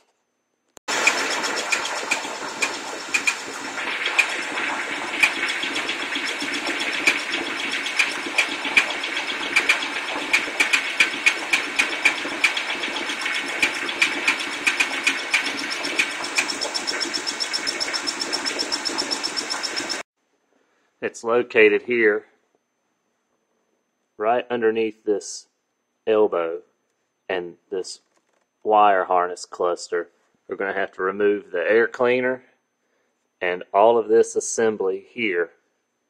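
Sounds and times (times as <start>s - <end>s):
car engine running: 0.9s - 20.0s
sharp chirps from engine: 1.0s - 20.0s.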